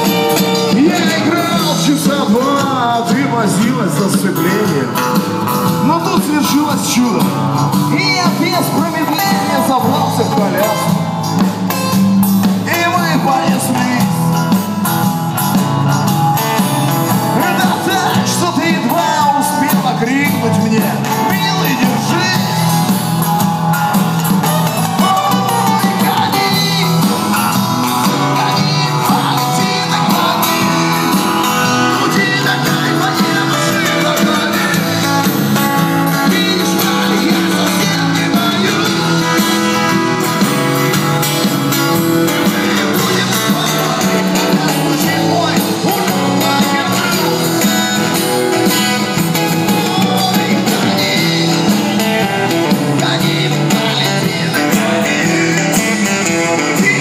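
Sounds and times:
live blues-rock band playing: 0.0s - 57.0s.

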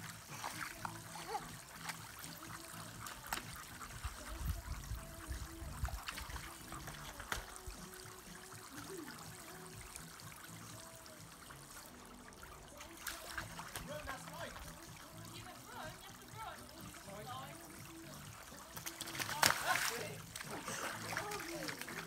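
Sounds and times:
water trickling and spattering: 0.0s - 22.0s
sharp splashes: 12.7s - 22.0s.

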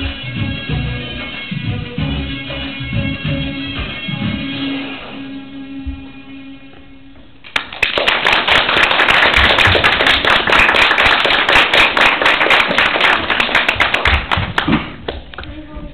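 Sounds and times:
audience applauding: 7.5s - 15.2s.

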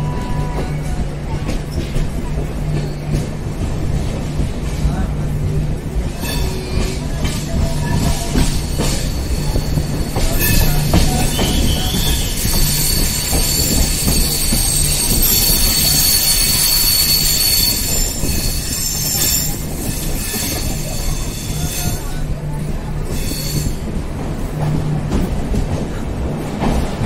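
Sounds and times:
train wheels rumbling on rails: 0.0s - 27.0s
train wheels squealing: 6.2s - 22.2s, 23.1s - 23.8s.

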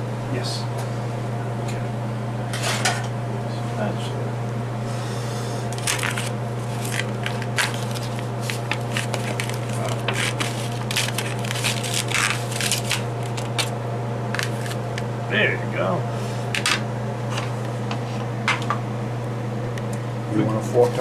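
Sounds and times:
spatula scraping foil pan: 5.8s - 13.7s
foil crinkling: 5.8s - 13.8s, 14.4s - 15.0s.

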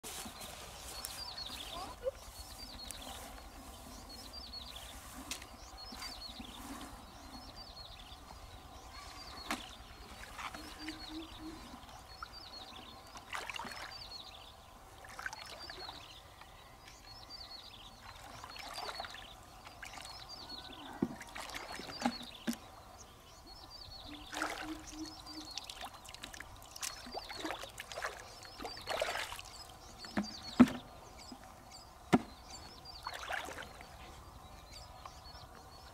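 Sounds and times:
water splashing and trickling: 0.0s - 16.5s, 17.8s - 22.8s, 23.8s - 35.5s.

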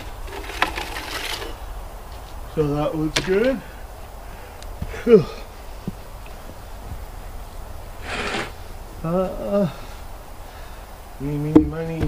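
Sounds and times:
soft footsteps on dirt: 1.8s - 7.8s.

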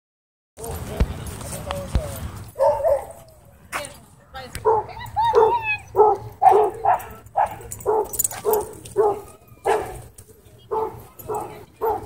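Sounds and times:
dog barking: 2.6s - 3.2s, 4.6s - 10.0s, 10.7s - 12.0s.

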